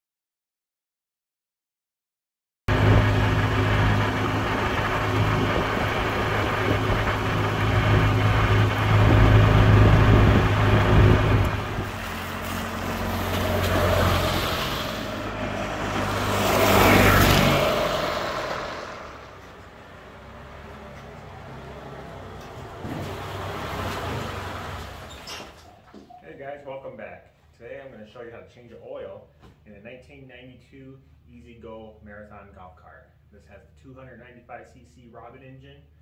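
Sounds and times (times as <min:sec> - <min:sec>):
golf cart engine running: 0:02.7 - 0:25.2.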